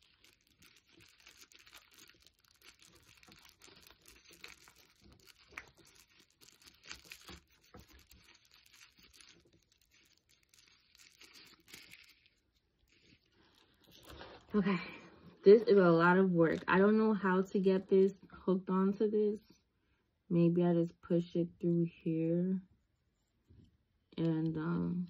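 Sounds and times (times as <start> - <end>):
packaging bag crinkling and tearing: 0.0 - 14.6.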